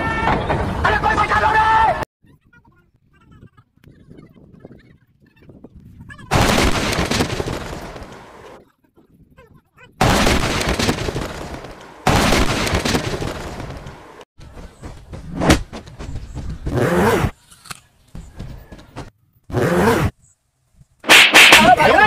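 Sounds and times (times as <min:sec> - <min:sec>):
sharp crack: 0:06.3 - 0:08.3, 0:10.0 - 0:14.2, 0:21.0 - 0:22.0.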